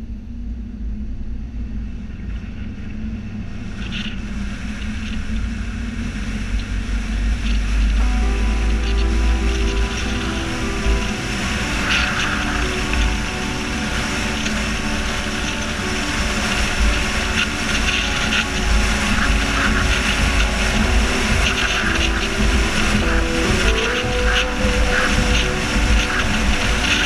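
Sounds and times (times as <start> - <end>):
car road and wind rumble: 0.0 - 27.0
music playing: 7.0 - 27.0.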